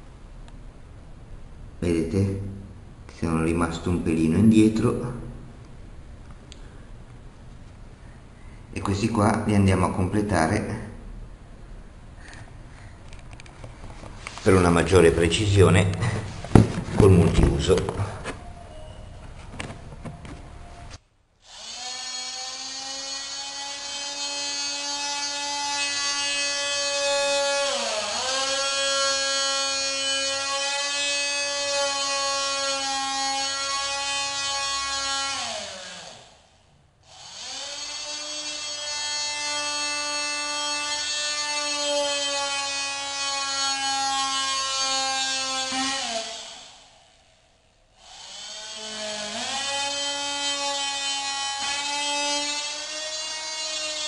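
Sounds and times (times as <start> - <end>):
oscillating multi-tool cutting wood: 21.4 - 47.4, 48.0 - 54.0.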